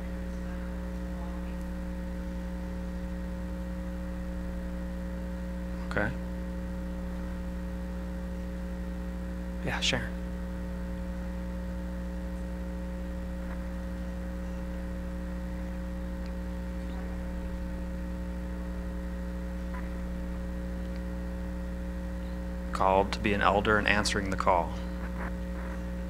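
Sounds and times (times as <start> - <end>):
electrical mains hum: 0.0 - 26.0.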